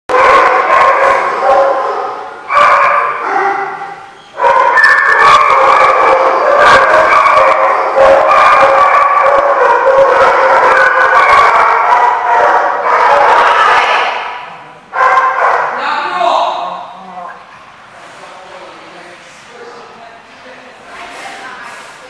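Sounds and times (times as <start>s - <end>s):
dogs barking and howling: 0.1s - 15.8s.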